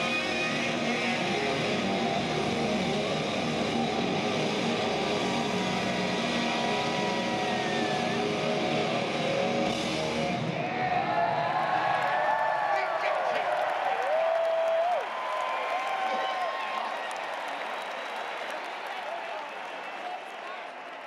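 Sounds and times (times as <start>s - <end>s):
hard rock band playing: 0.0s - 10.6s
overdriven electric guitar: 0.0s - 10.6s
stadium crowd noise: 0.0s - 21.0s.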